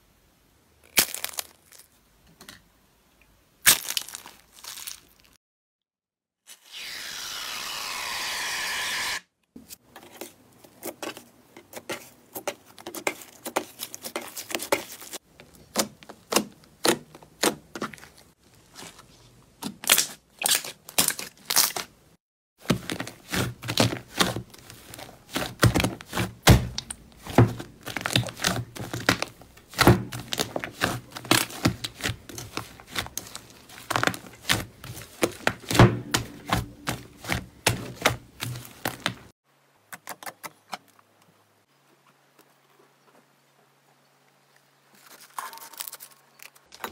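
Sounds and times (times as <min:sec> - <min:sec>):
slime crackling and popping: 0:00.9 - 0:01.9, 0:03.6 - 0:05.4, 0:22.8 - 0:39.2
aerosol foam can hissing: 0:06.7 - 0:09.2.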